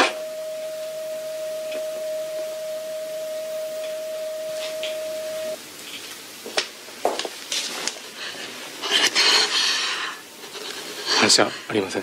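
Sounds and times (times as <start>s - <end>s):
heart monitor flatline beep: 0.0s - 5.6s.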